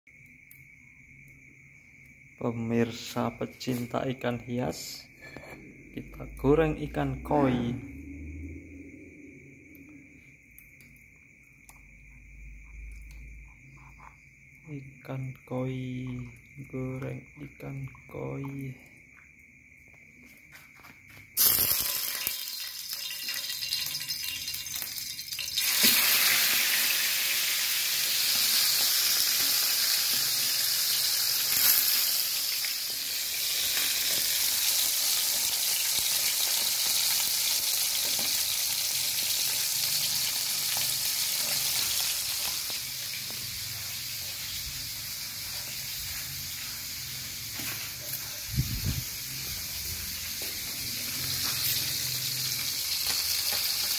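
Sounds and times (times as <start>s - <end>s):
fish sizzling in hot oil: 21.4s - 53.9s.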